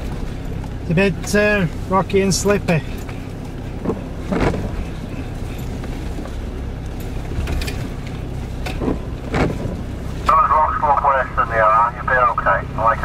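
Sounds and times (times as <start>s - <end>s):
off-road vehicle engine running low: 0.0s - 13.0s
knocks and thumps over rocks: 3.8s - 5.0s, 7.4s - 9.8s.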